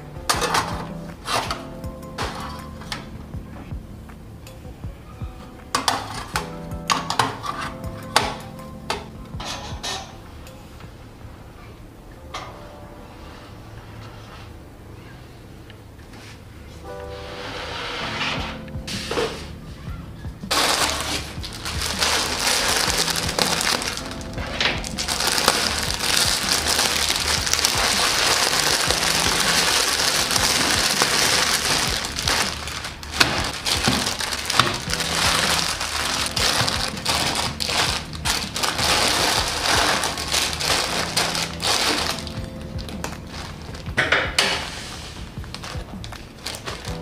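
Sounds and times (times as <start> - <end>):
soft background music: 0.0 - 47.0
plastic packets crinkling: 20.5 - 43.9, 45.5 - 47.0.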